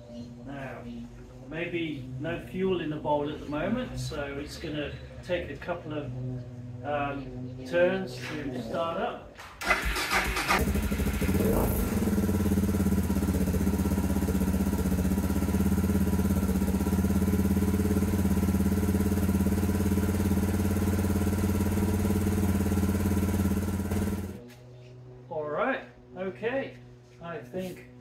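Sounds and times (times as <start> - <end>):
motorcycle engine idling: 9.6 - 24.4.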